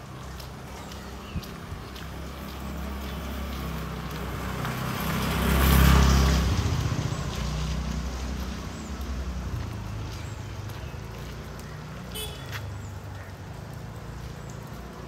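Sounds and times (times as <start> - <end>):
vehicle engine passing by: 2.2 - 12.1.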